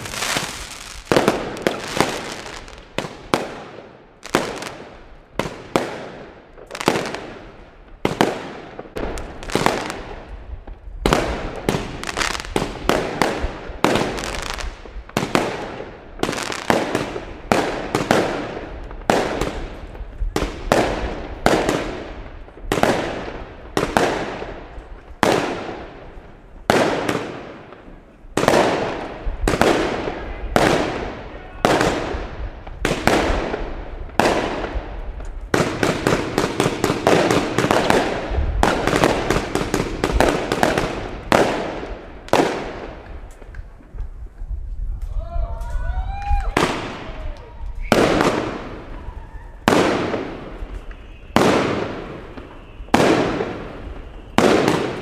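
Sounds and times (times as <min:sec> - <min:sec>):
aerial fireworks banging: 0:49.6 - 0:55.0.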